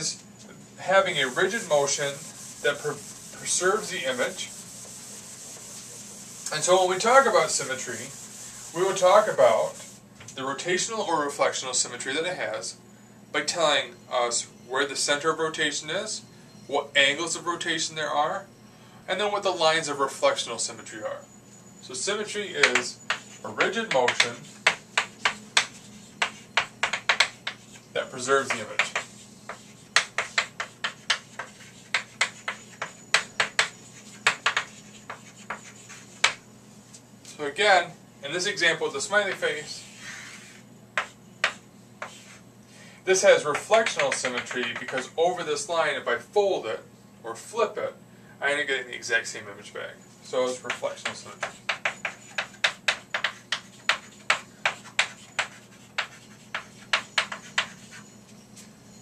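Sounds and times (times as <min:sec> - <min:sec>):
chalk tapping and scratching: 0:00.8 - 0:10.0, 0:22.6 - 0:37.0, 0:39.2 - 0:42.4, 0:43.5 - 0:45.1, 0:50.5 - 0:58.7.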